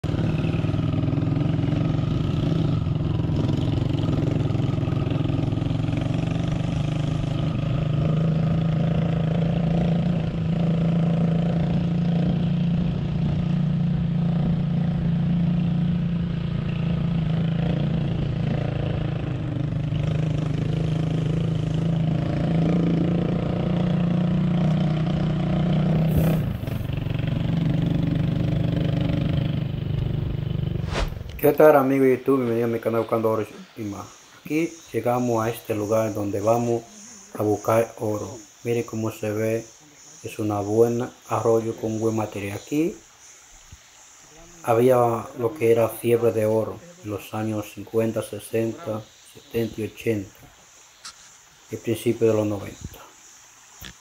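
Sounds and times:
motorcycle engine running: 0.0 - 31.4.

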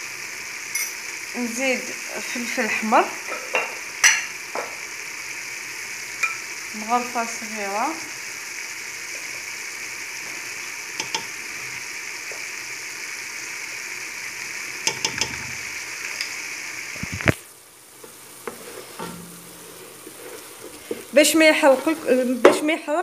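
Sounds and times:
onion sizzling in oil: 0.0 - 23.0
wooden spoon knocking pot: 14.8 - 15.4.

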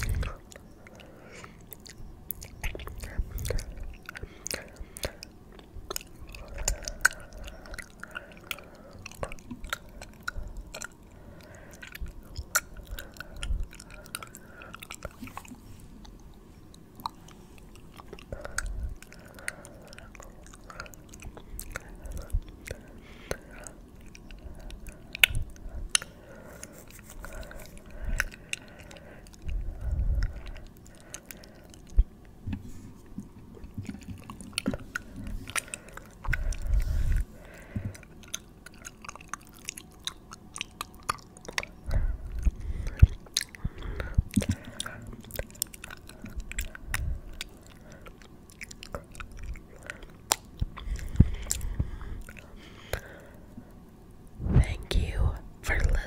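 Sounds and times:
soft low thumps: 54.4 - 55.4.

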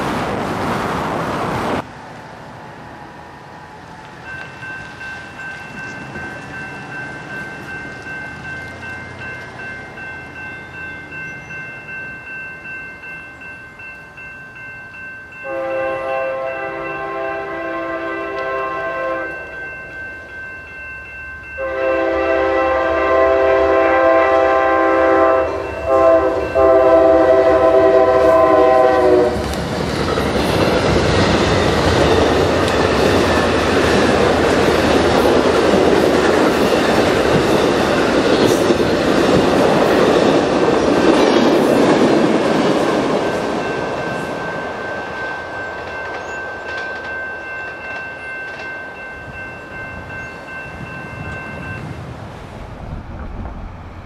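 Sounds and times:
train rumbling past: 0.0 - 54.0
crossing signal bell ringing: 2.7 - 29.4, 31.2 - 52.1
train horn blasts: 15.4 - 19.6, 21.6 - 29.5.

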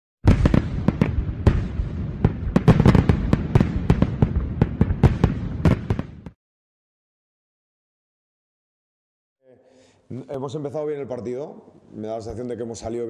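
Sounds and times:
fireworks bangs and crackles: 0.2 - 6.4.

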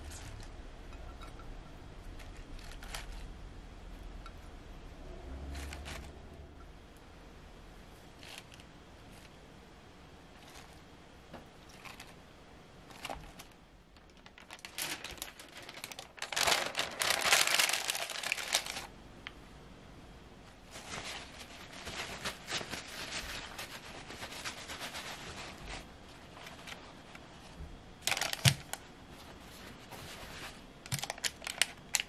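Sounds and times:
paper sheet crinkling: 12.9 - 18.9, 20.6 - 32.0.

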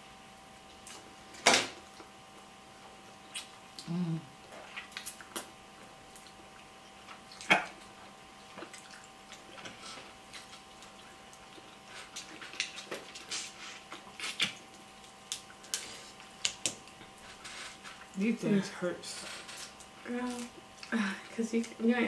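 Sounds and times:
wet chewing and lip-smacking: 3.2 - 3.9, 4.5 - 18.2
crab legs cracking: 7.0 - 17.9.

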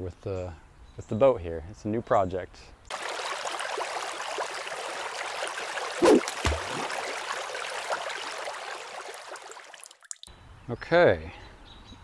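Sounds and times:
low thump: 6.0 - 6.8.

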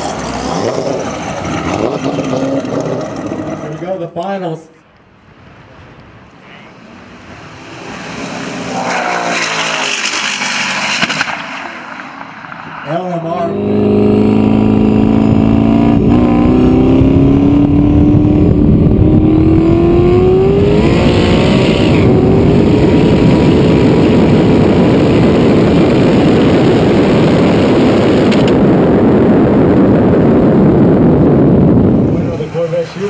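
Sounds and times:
car engine at full throttle: 0.0 - 3.8, 7.1 - 33.0
wind rushing: 7.2 - 33.0.

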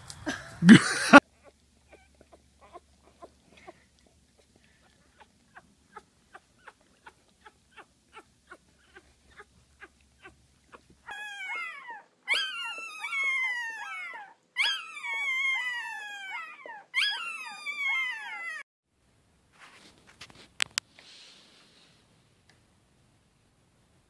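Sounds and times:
puppies whimpering: 1.2 - 18.7.

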